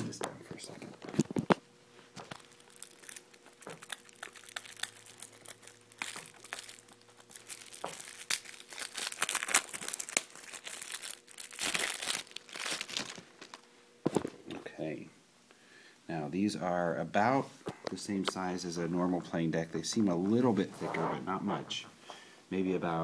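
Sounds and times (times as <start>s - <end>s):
plastic wrapping tearing and crinkling: 0.9s - 13.7s.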